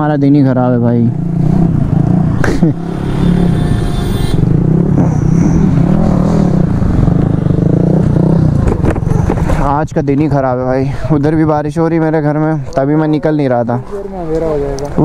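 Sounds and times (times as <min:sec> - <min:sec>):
motorcycle engine running: 0:01.0 - 0:09.8.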